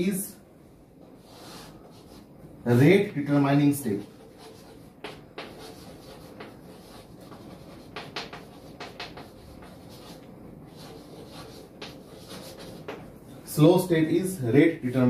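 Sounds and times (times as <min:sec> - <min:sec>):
chalk tapping and scratching: 0:01.0 - 0:02.3, 0:03.8 - 0:13.2.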